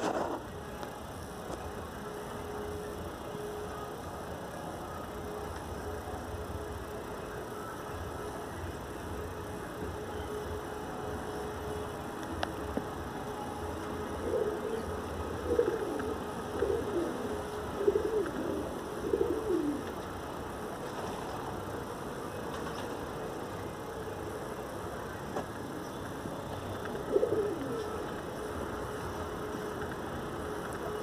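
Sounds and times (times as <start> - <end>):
dove cooing: 12.8 - 21.6, 26.7 - 31.0.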